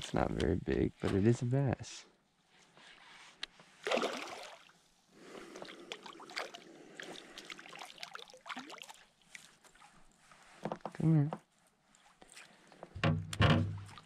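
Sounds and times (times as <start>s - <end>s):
fish splashing at water surface: 3.8s - 4.7s, 5.5s - 9.5s.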